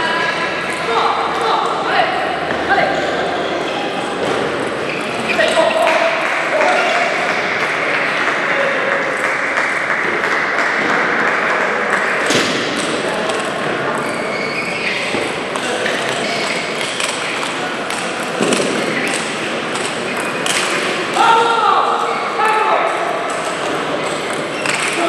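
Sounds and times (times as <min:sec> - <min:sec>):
murmur of voices: 0:00.0 - 0:25.0
table tennis balls clicking: 0:15.2 - 0:20.9, 0:23.2 - 0:25.0.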